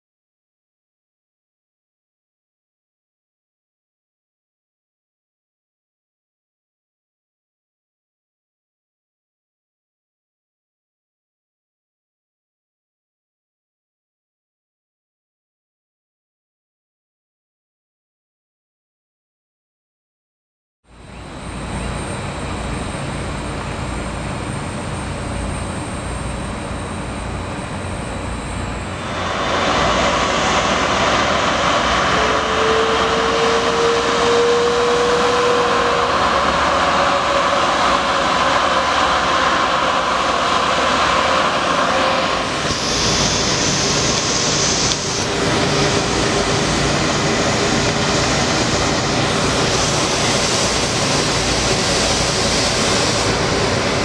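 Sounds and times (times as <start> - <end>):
faint rising whine: 20.9 - 54.0
jet engines running: 20.9 - 54.0.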